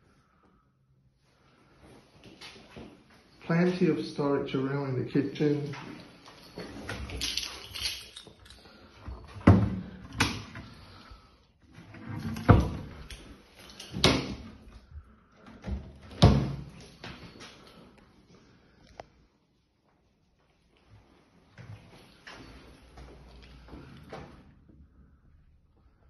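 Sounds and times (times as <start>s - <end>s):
cupboard doors and drawers shutting: 11.8s - 13.1s.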